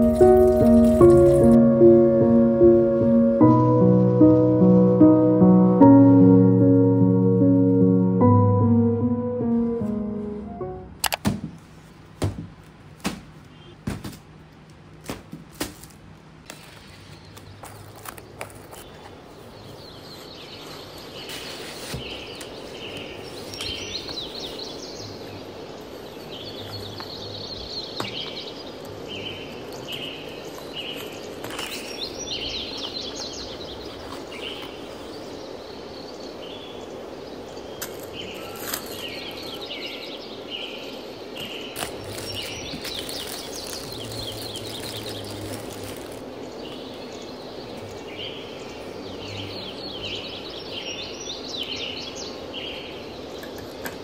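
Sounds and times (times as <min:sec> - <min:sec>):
small birds chirping: 0:13.4 - 0:13.8, 0:16.5 - 0:54.0
cardboard and paper rustling: 0:15.1 - 0:19.2, 0:31.0 - 0:32.0, 0:37.9 - 0:39.6, 0:41.8 - 0:46.2.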